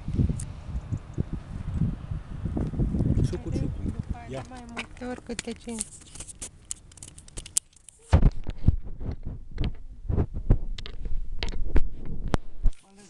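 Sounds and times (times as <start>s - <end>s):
low thumps and rumbling: 0.0s - 5.6s, 8.1s - 12.8s
sharp clicks: 4.4s - 8.6s.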